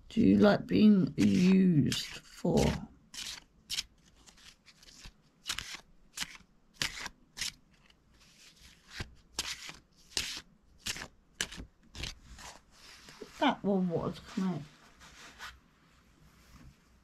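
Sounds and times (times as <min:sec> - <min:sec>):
cards being shuffled: 0:01.2 - 0:13.5.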